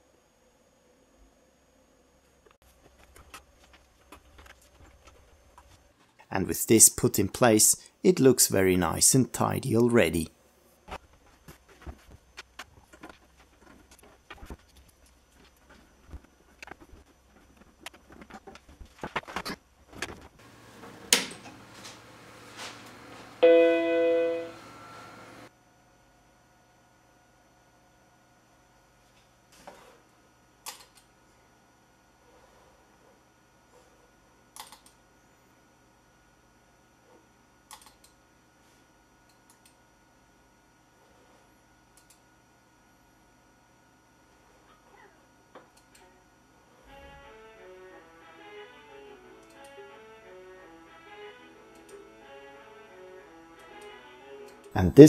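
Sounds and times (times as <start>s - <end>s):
computer startup chime: 23.4s - 25.3s
computer mouse clicks: 30.6s - 31.1s, 34.6s - 35.0s, 37.7s - 38.2s, 41.9s - 42.2s.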